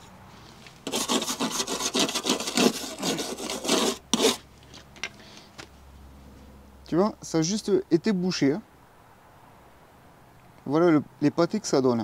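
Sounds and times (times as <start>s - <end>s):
scraping rubbing noise: 0.8s - 4.4s.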